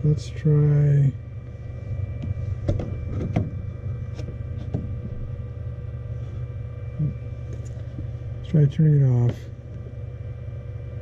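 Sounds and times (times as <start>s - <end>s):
three d printer hum and fan whine: 0.0s - 11.0s.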